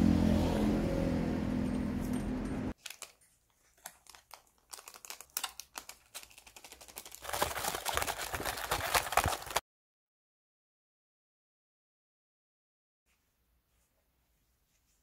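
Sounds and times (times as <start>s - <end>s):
street traffic noise: 0.0s - 2.8s
food packaging crinkling: 2.8s - 9.6s
snacks rattling in cardboard box: 2.8s - 9.6s.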